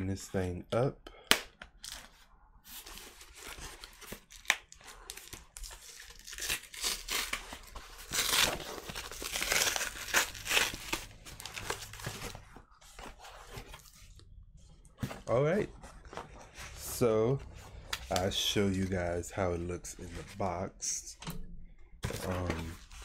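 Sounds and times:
packaging tearing and crinkling: 0:03.2 - 0:12.3.

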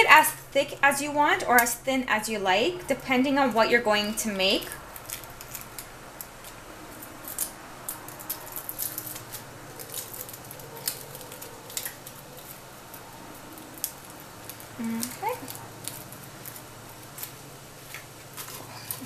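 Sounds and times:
faint steady hum: 0:00.0 - 0:19.0
dough sheet crackling and scraping: 0:02.8 - 0:19.0.

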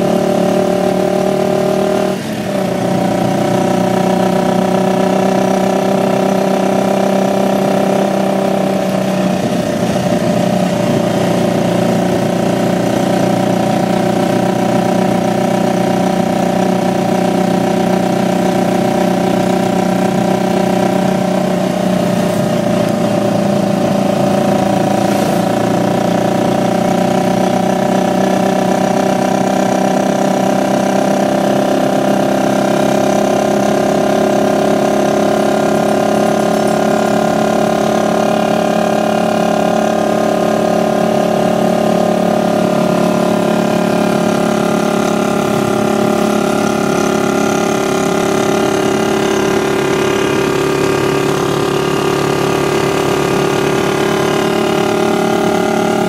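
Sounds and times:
motorcycle engine running steadily: 0:00.0 - 0:56.0.

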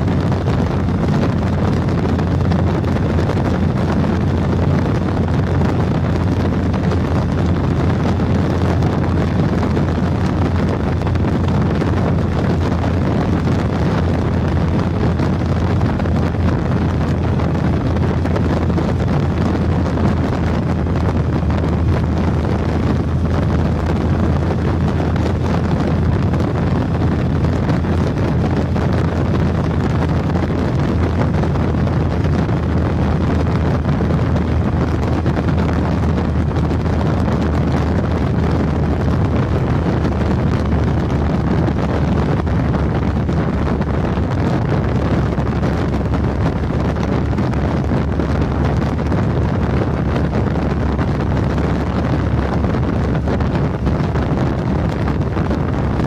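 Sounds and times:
motorcycle engine drone: 0:00.0 - 0:56.0
wind rushing on microphone: 0:00.0 - 0:56.0.

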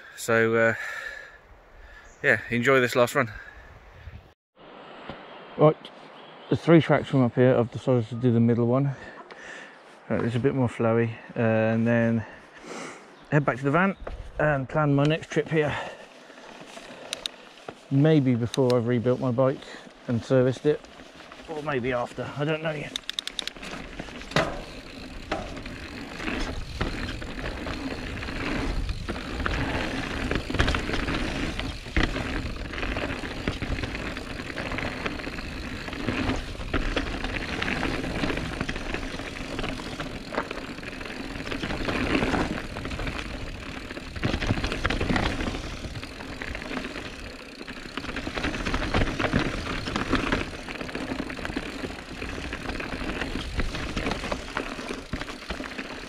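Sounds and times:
bike tyres rolling on dirt: 0:06.2 - 0:56.0
bike frame and chain rattling: 0:15.7 - 0:56.0.

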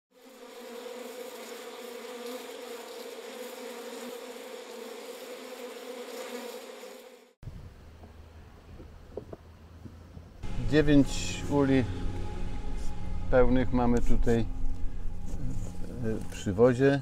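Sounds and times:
honeybees buzzing: 0:00.1 - 0:07.4, 0:10.4 - 0:16.7.

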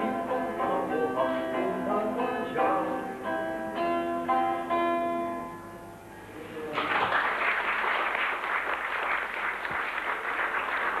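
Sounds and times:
audience applauding: 0:06.7 - 0:11.0.

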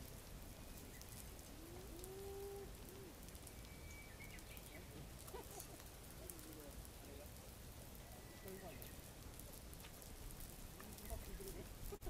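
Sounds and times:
outdoor background hiss: 0:00.0 - 0:12.0
faint chirps: 0:03.4 - 0:06.4, 0:08.0 - 0:09.1.

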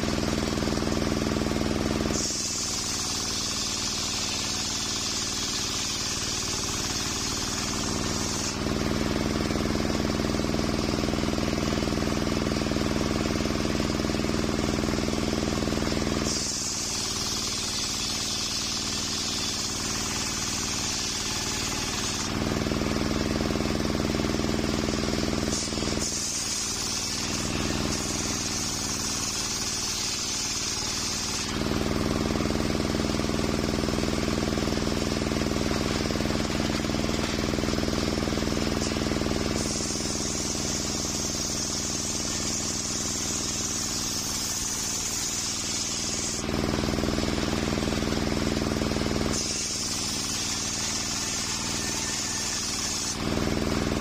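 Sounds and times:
saw blade spinning free: 0:00.0 - 0:13.0, 0:13.7 - 0:54.0
circular saw cutting log: 0:00.0 - 0:54.0
saw drive hum: 0:00.0 - 0:54.0.

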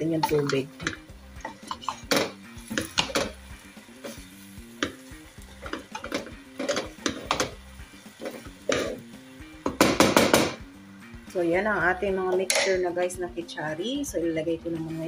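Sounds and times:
faint background music: 0:00.0 - 0:15.0
wooden spatula scraping a pot: 0:01.4 - 0:03.4.

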